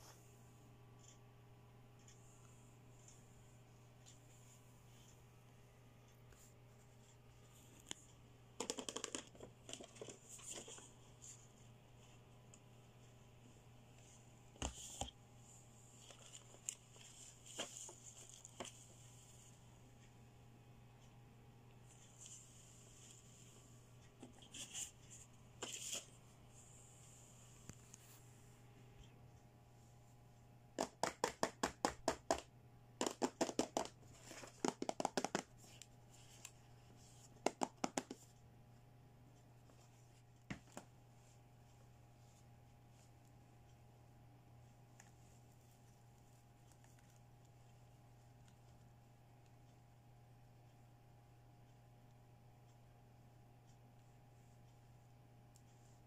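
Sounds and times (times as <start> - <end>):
low steady hum: 0.0 - 30.8, 32.0 - 56.0
fingernails tapping on plastic: 30.8 - 33.9, 34.5 - 35.5, 37.4 - 38.2.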